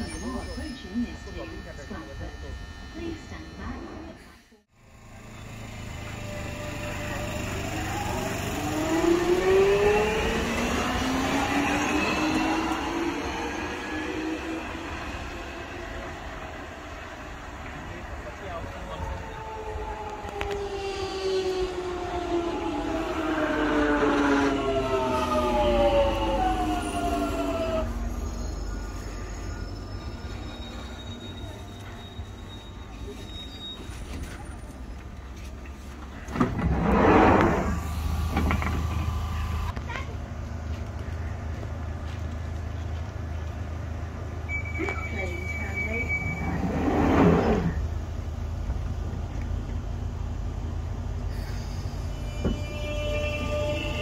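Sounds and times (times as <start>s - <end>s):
train rumble: 4.8s - 54.0s
train motor whine falling: 36.6s - 39.8s.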